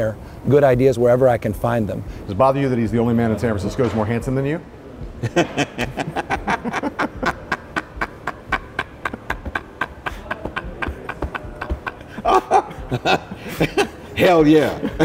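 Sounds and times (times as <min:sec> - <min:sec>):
man laughing in breathy bursts: 0:05.2 - 0:15.0.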